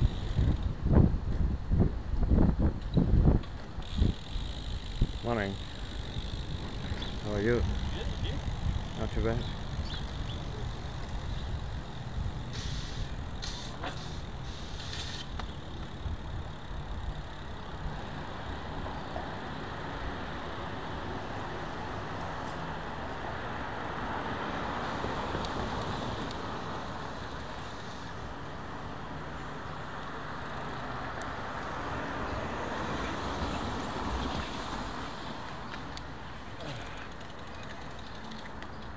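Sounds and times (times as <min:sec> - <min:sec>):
wind buffeting microphone: 0:00.0 - 0:13.4
bicycle tyres rolling on road: 0:00.0 - 0:38.9
sharp clicks and rattles: 0:36.7 - 0:38.9.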